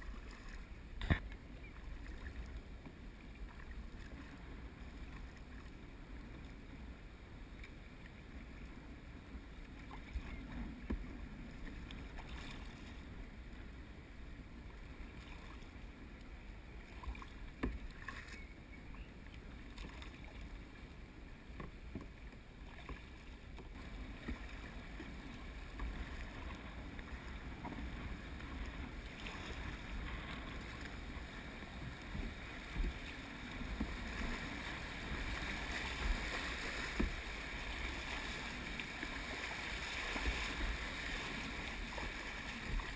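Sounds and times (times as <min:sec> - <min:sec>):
paddle strokes: 0:00.0 - 0:06.7, 0:09.5 - 0:13.3, 0:14.9 - 0:42.9
water sloshing: 0:21.6 - 0:42.9
rush of river riffle: 0:23.8 - 0:42.9.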